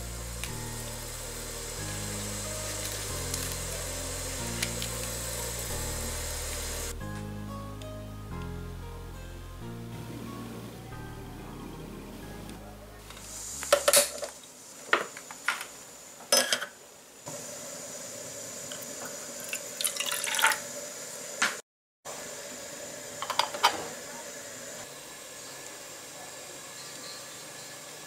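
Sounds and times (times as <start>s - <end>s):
gas burner hissing: 0.0s - 7.2s, 9.9s - 28.0s
water pouring into pot: 17.4s - 21.1s.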